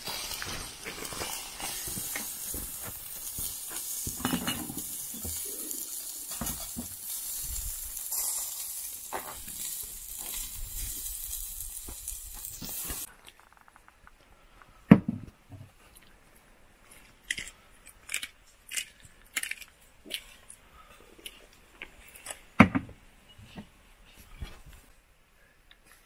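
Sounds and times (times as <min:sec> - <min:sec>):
objects clicking and clinking: 0:01.8 - 0:05.5.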